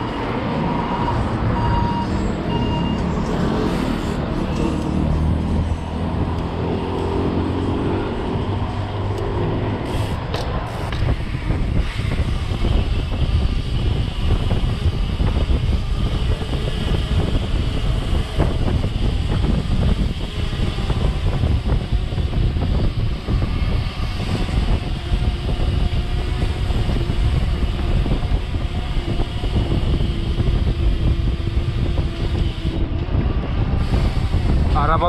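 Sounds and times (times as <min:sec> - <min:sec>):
wind on microphone: 0:00.0 - 0:35.0
mountain bike rattling: 0:09.2 - 0:35.0.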